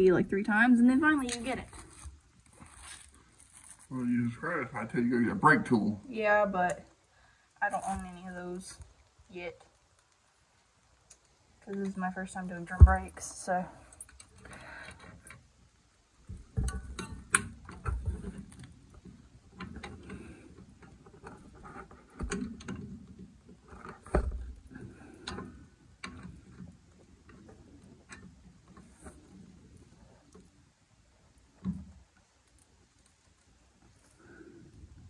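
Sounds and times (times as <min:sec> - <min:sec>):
small metallic clicks and scrapes: 0:00.8 - 0:04.0, 0:06.6 - 0:15.6, 0:16.2 - 0:35.0.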